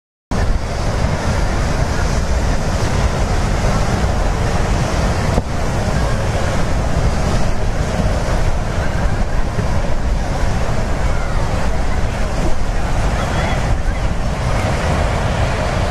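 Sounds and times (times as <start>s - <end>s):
ocean surf washing onto beach: 0.3s - 15.9s
wind buffeting microphone: 0.3s - 15.9s.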